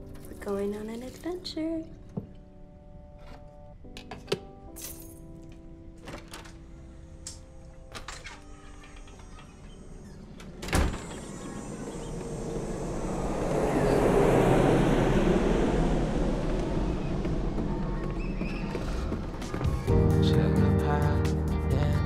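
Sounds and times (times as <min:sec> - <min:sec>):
door banging shut: 0:10.4 - 0:11.5
passing vehicle rushing: 0:11.3 - 0:19.4.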